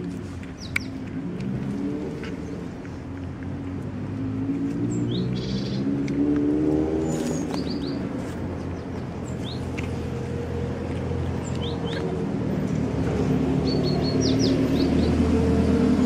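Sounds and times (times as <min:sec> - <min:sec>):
cats crunching dry food: 0:00.0 - 0:04.8
bird chirps: 0:04.9 - 0:06.0, 0:07.0 - 0:08.1, 0:09.2 - 0:09.8, 0:11.4 - 0:12.1, 0:13.6 - 0:15.2.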